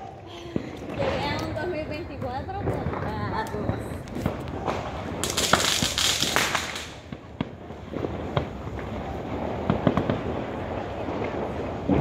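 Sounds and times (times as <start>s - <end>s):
fireworks crackling: 0.0s - 12.0s.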